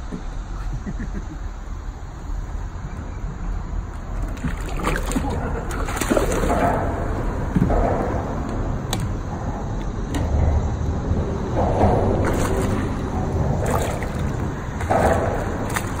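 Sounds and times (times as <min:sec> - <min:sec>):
steady low rumble: 0:00.0 - 0:16.0
water lapping against kayak: 0:04.0 - 0:07.2, 0:12.1 - 0:16.0.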